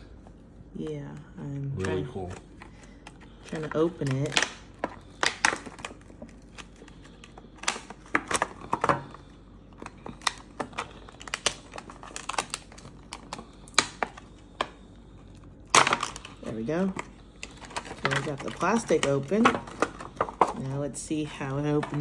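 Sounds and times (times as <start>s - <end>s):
plastic crinkling: 1.8s - 20.8s.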